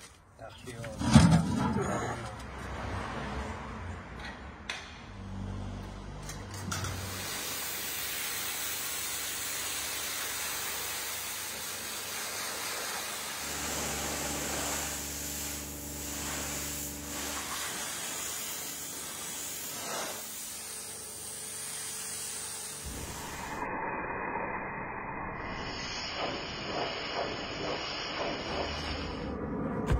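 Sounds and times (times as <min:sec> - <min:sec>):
high-pressure water jet hissing: 0:06.8 - 0:29.2.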